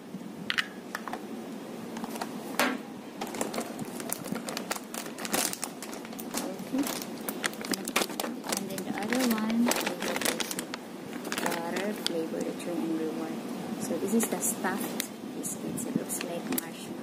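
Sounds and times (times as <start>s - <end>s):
plastic packaging crinkling: 3.2s - 12.5s.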